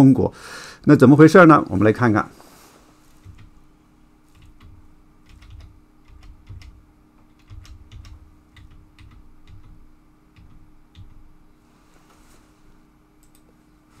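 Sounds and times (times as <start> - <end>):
computer keys clicking: 3.2 - 3.6, 4.3 - 11.4, 13.2 - 13.5.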